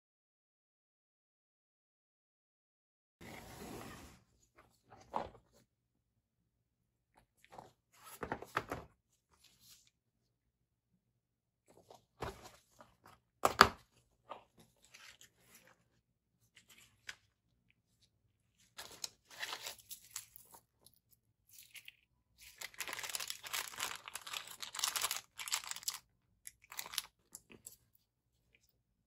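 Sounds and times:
wrapping tearing and crinkling: 21.6s - 27.3s.

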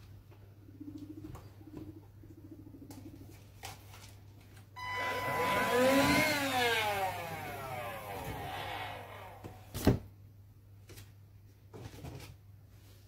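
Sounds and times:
vacuum cleaner motor whine: 4.8s - 9.8s.

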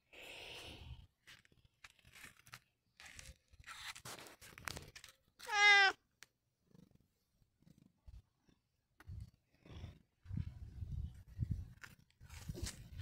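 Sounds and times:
cat meowing: 5.4s - 6.0s.

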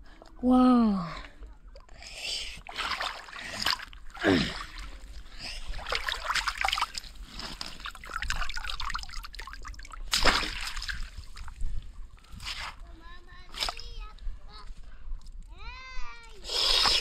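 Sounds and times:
small water splashes: 1.2s - 12.8s
water trickling and dripping: 4.9s - 11.8s
loud splash: 10.1s - 11.1s.

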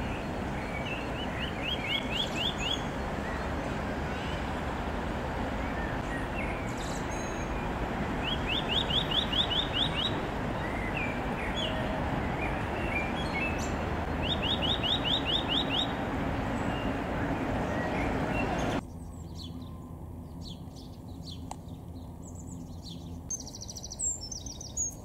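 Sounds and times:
bird call notes: 0.0s - 18.8s
bird singing rising notes: 0.0s - 25.0s.

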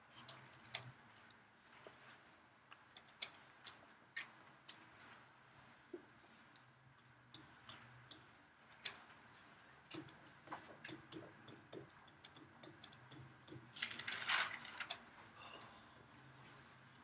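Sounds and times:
stylus tapping on tablet screen: 5.9s - 13.8s.

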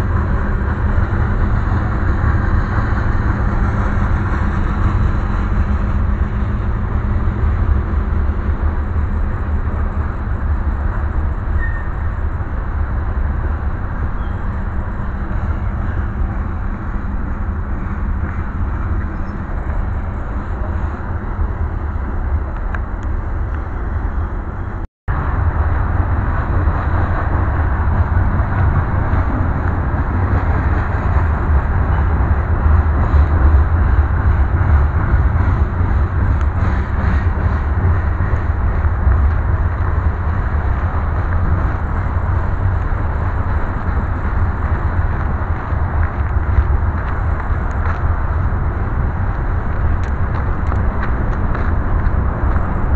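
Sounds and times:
train cars rumbling on rails: 0.0s - 52.9s.

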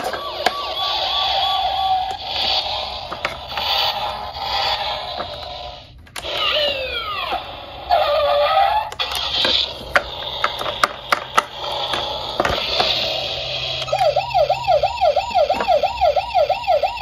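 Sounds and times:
toy siren electronic tones: 0.0s - 2.8s, 6.2s - 9.0s, 13.4s - 17.0s
warbling electronic tone: 12.9s - 17.0s
falling electronic tones: 13.4s - 17.0s.

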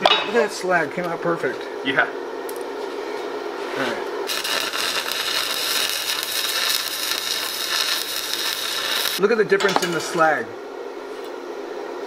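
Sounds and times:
welding arc crackling: 4.2s - 9.2s.

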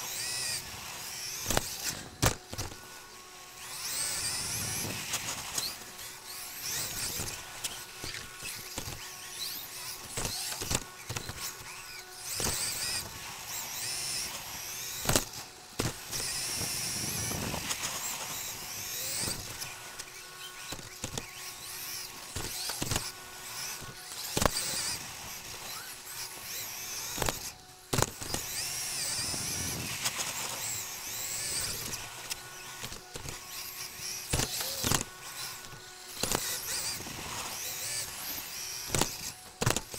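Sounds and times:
electric motor whining: 0.0s - 39.9s
rush of tyres and drivetrain: 0.0s - 39.9s.

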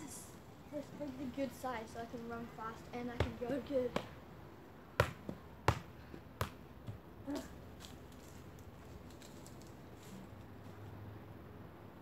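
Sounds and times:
football kicked and juggled: 3.1s - 4.1s, 5.0s - 8.0s.

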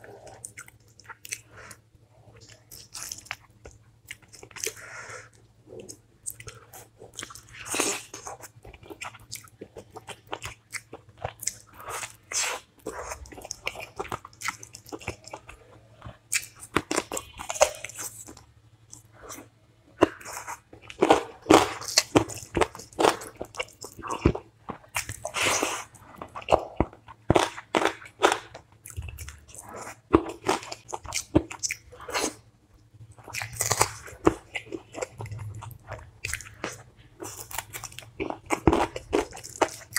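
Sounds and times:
wet chewing and smacking: 0.0s - 39.9s
crunchy bites: 7.2s - 32.4s, 33.2s - 39.9s.

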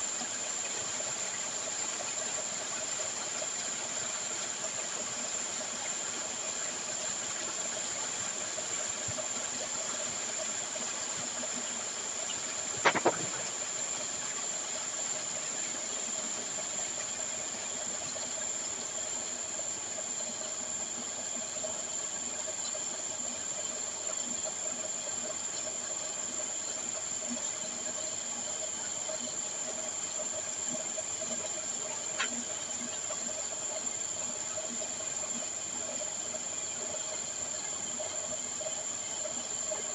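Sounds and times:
slurry pouring hissing rush: 0.0s - 19.7s
sharp knock: 12.8s - 13.5s.

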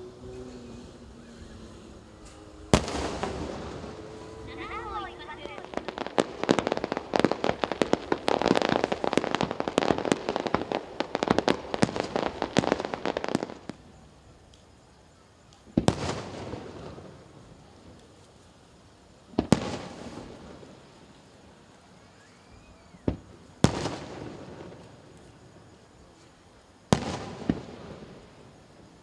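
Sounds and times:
fireworks bangs and crackles: 0.0s - 29.0s.

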